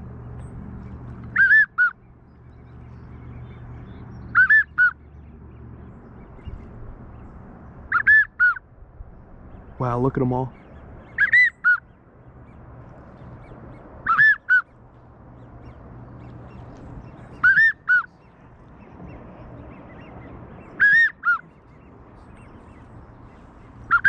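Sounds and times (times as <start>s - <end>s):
duck whistled calls: 1.3s - 1.9s, 4.4s - 4.9s, 7.9s - 8.6s, 11.2s - 11.8s, 14.1s - 14.6s, 17.4s - 18.1s, 20.8s - 21.4s.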